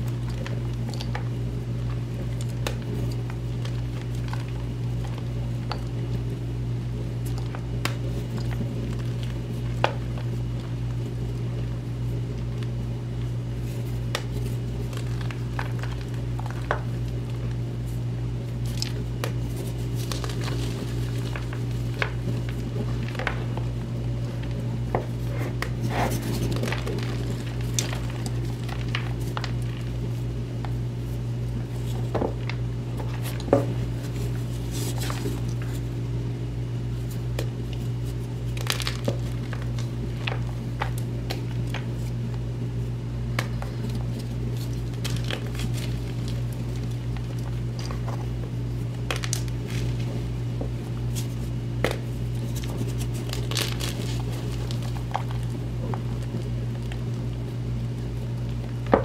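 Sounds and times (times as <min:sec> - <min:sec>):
steady low hum: 0:00.0 - 0:59.0
hands crushing chalk blocks: 0:37.0 - 0:42.2, 0:43.3 - 0:48.4, 0:49.0 - 0:57.1.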